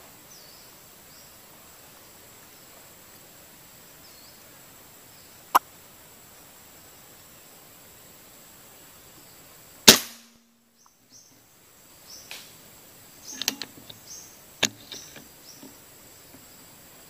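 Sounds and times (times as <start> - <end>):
air rifle shot: 9.9 - 10.3
sharp clicks: 13.3 - 14.0, 14.6 - 15.3.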